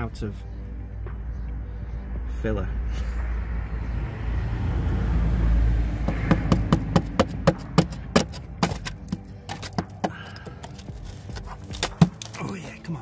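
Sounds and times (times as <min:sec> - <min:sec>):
tool knocking on car underside: 0:06.1 - 0:10.2.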